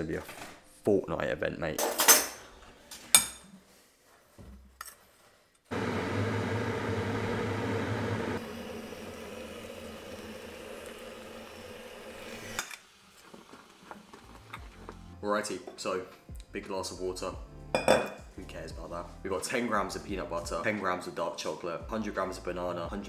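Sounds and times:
water pouring splashing hiss: 8.4s - 14.5s.

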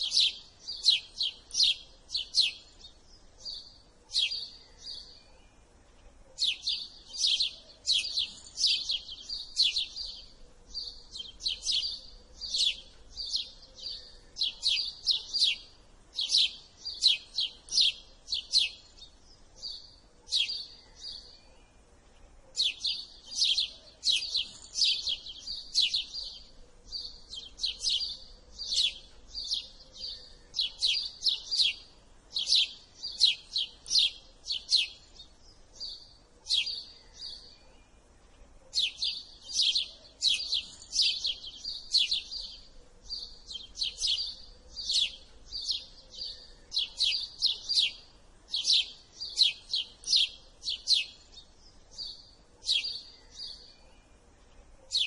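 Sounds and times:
sparrow chirping: 0.0s - 55.0s.

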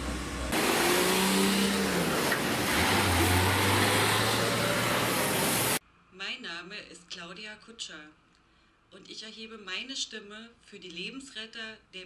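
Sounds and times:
fire engine driving past: 0.0s - 5.8s
tyres hissing on wet road: 0.0s - 5.8s.

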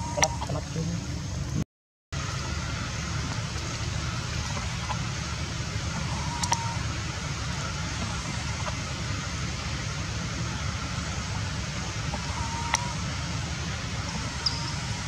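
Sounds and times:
low outdoor rumble: 0.0s - 1.6s, 2.2s - 15.0s
faint click: 6.4s - 6.6s.

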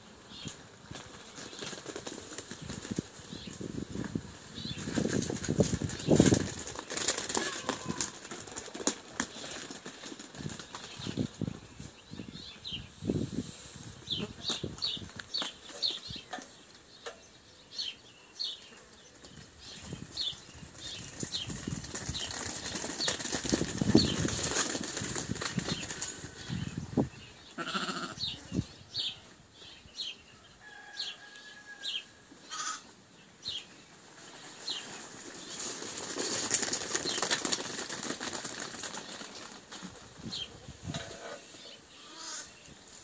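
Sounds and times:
hooves pattering on concrete: 0.9s - 12.8s, 14.0s - 16.9s, 17.8s - 27.2s, 34.2s - 41.0s.

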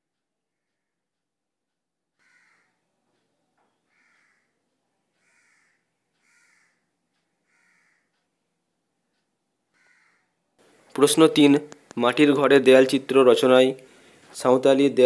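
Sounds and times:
faint bird calls: 2.2s - 8.2s, 9.7s - 10.4s.

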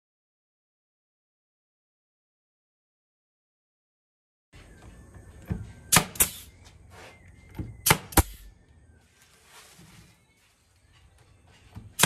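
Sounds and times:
nail gun shots: 5.9s - 6.5s, 7.8s - 8.5s
hiss of exhaust air: 6.2s - 6.6s.

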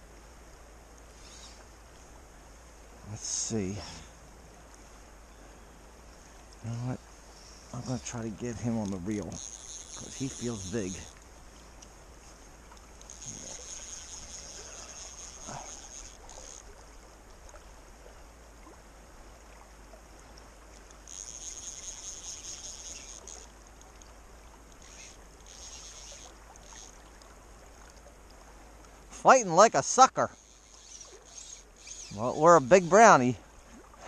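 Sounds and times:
creek running: 0.0s - 34.0s
fishing reel clicker ratcheting: 8.6s - 11.2s, 12.7s - 16.8s, 20.9s - 27.0s, 30.3s - 33.2s.

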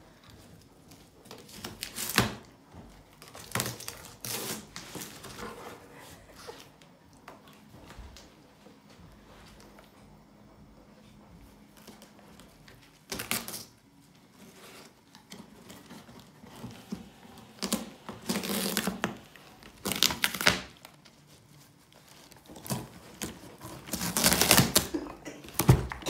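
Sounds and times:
dog tearing tape and cardboard: 0.9s - 2.5s, 3.1s - 5.7s, 13.0s - 13.8s, 14.4s - 21.2s, 21.9s - 26.0s.

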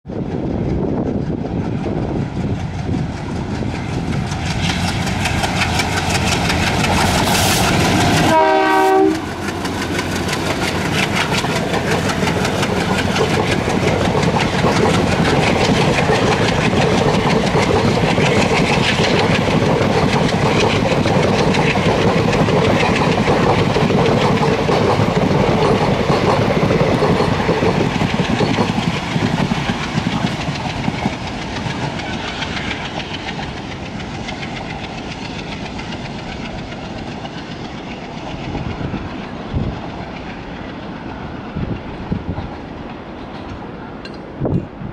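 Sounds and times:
train wheels clickety-clack: 0.0s - 44.9s
diesel locomotive chugging: 0.1s - 44.9s
locomotive horn: 7.3s - 9.4s.

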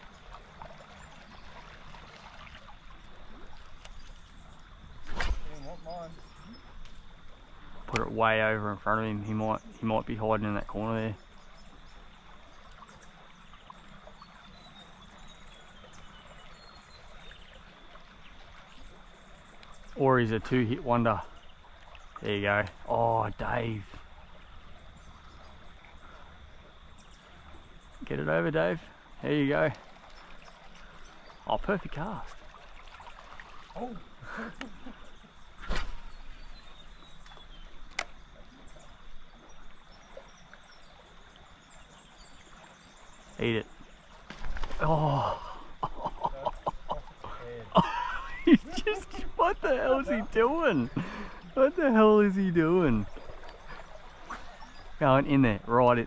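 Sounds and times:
gently flowing river: 0.0s - 56.0s
faint bird chirps: 3.8s - 7.1s, 7.9s - 22.3s, 33.6s - 56.0s.

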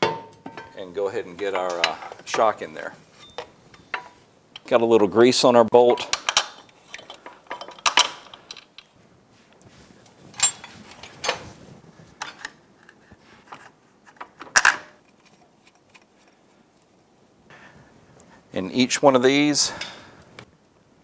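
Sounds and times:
metallic clinks and knocks: 5.9s - 9.0s, 10.3s - 12.5s.

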